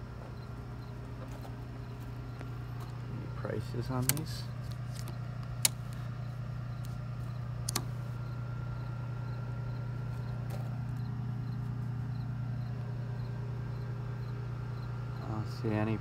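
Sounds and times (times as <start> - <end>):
low mechanical hum: 0.0 - 16.0
sharp clicks: 4.0 - 6.0, 7.6 - 8.0.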